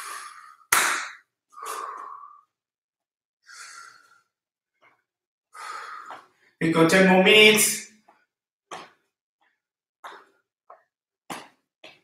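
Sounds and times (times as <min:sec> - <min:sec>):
man breathing deeply: 0:00.0 - 0:00.7, 0:01.5 - 0:02.6, 0:03.4 - 0:04.4, 0:05.5 - 0:06.6.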